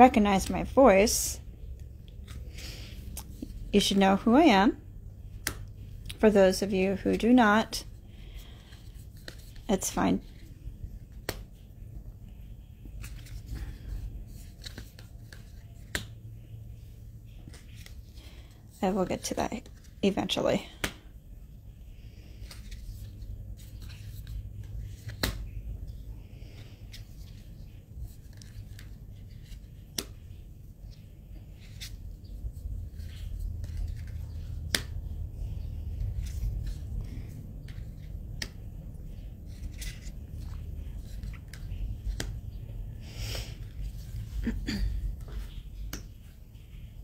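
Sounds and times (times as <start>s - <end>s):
low steady rumble: 0.0s - 47.0s
cards sliding and rustling: 1.8s - 4.0s, 7.9s - 11.8s, 12.4s - 20.0s, 21.9s - 42.6s.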